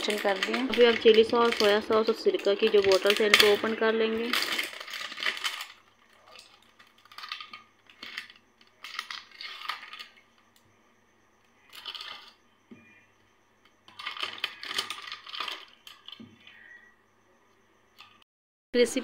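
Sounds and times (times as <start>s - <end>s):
plastic seals crinkling and tearing: 0.0s - 10.2s, 13.9s - 16.2s.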